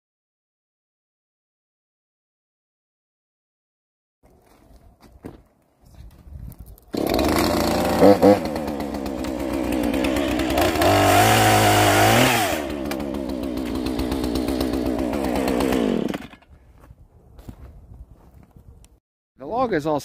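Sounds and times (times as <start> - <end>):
chainsaw running and revving: 6.9 - 16.5.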